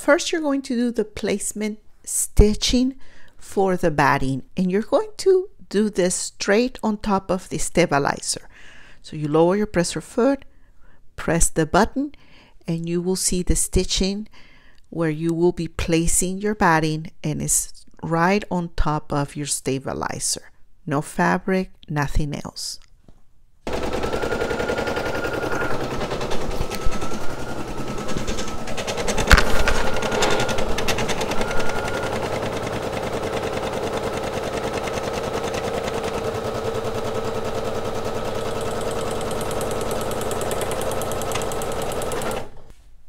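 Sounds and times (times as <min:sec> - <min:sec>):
embroidery machine needle clatter: 0:23.7 - 0:42.7.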